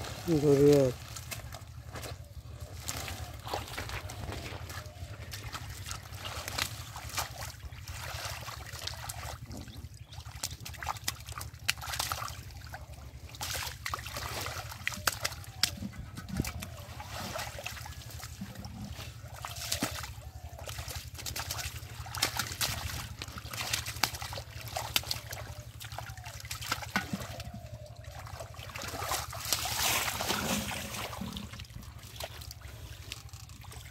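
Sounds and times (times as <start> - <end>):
hands digging in mud: 0.0 - 9.4, 13.3 - 33.9
muddy water sloshing: 0.0 - 33.9
small sharp splashes: 2.8 - 33.9.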